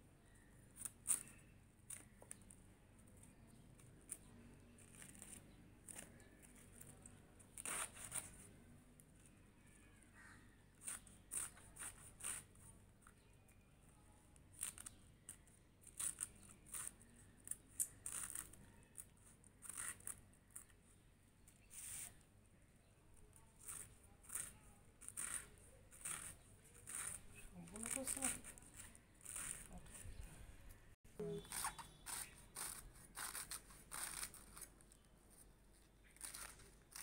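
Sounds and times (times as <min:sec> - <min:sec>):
knife slicing cabbage: 0:07.5 - 0:08.5, 0:23.6 - 0:30.2, 0:31.3 - 0:34.7, 0:36.1 - 0:37.0.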